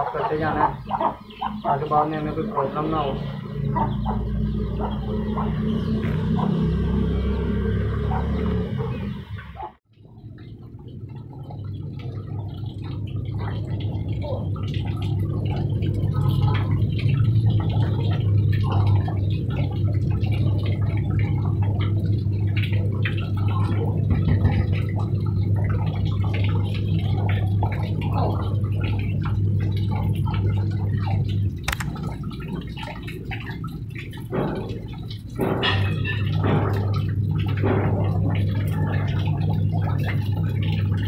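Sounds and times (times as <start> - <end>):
water dripping: 0.0 - 41.0
low hum: 0.4 - 41.0
hose water splashing: 10.0 - 41.0
sharp click: 31.7 - 31.9.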